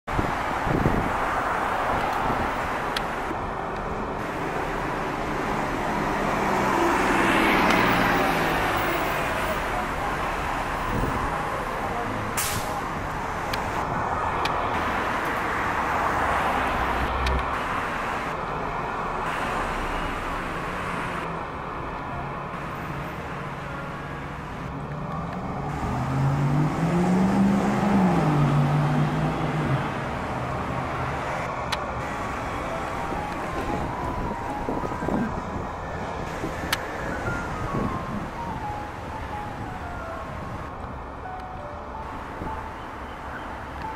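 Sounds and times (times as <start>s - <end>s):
passing traffic: 0.0s - 43.9s
vehicle engine passing by: 25.2s - 35.8s.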